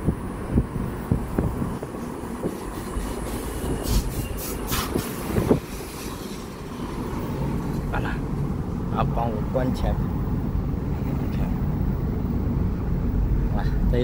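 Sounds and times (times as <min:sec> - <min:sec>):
car road rumble: 0:00.0 - 0:14.0
wind noise through car window: 0:00.0 - 0:14.0
short bursts of hiss: 0:02.4 - 0:06.6.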